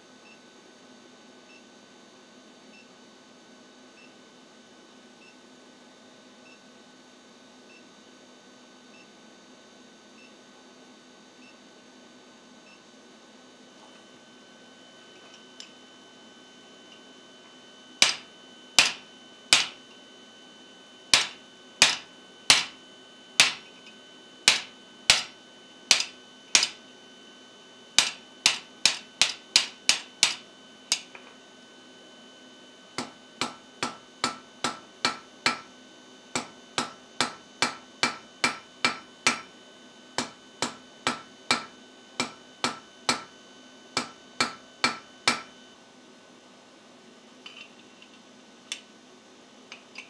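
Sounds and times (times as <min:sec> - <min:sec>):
hammer striking metal tool: 0:18.0 - 0:19.8, 0:21.1 - 0:22.8, 0:23.4 - 0:23.9, 0:24.5 - 0:26.8, 0:28.0 - 0:31.2, 0:33.0 - 0:35.7, 0:36.4 - 0:39.5.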